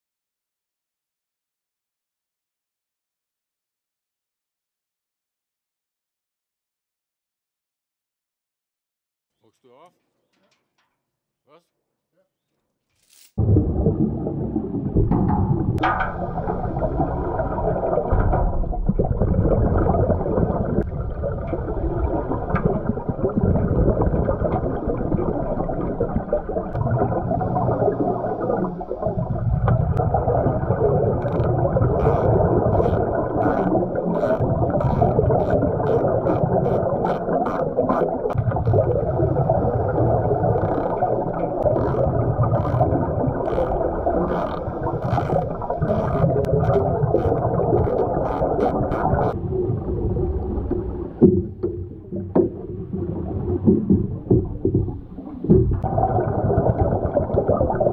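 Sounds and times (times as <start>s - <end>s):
muffled underwater rumble: 13.4s - 57.9s.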